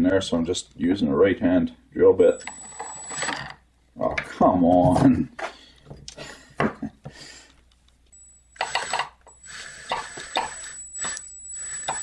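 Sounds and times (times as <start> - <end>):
faint high whine: 2.2 - 3.6, 8.1 - 12.0
drill bit grinding metal: 2.3 - 3.5, 8.6 - 12.0.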